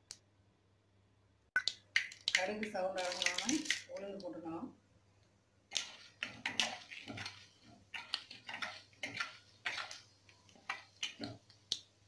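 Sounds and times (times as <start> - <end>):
metal spatula scraping clay pot: 5.7 - 11.4
seeds frying in oil: 5.7 - 12.0.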